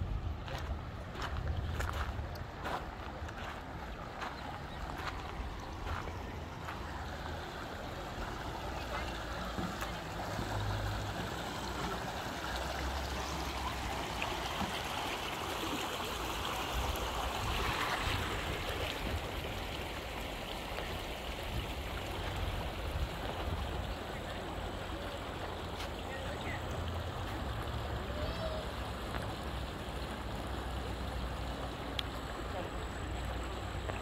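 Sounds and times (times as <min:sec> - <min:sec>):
creek water running over rocks: 0:00.0 - 0:34.0
faint voices: 0:00.4 - 0:16.3, 0:23.6 - 0:29.5.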